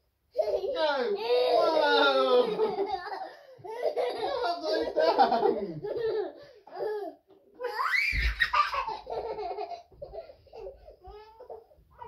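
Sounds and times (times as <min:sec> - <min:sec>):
child squealing: 0:01.2 - 0:02.1, 0:07.6 - 0:08.9
child belly laughing: 0:02.4 - 0:07.1, 0:07.7 - 0:11.0.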